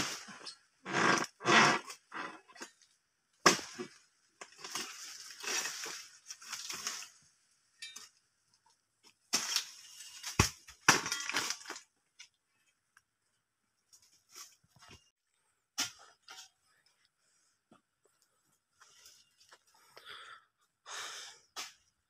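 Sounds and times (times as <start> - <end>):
sickle cutting palm crown: 3.4 - 3.9
fronds rustling and crashing down: 4.6 - 7.3, 9.3 - 11.9.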